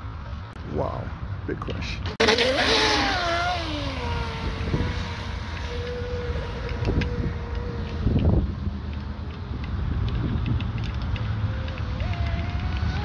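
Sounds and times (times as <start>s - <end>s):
electric motor whining: 2.2s - 8.9s, 10.9s - 13.0s.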